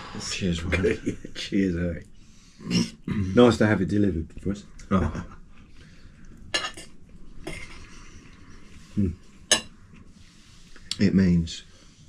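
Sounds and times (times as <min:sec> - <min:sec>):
cutlery clinking on dishes: 0:06.6 - 0:06.9, 0:09.5 - 0:09.8.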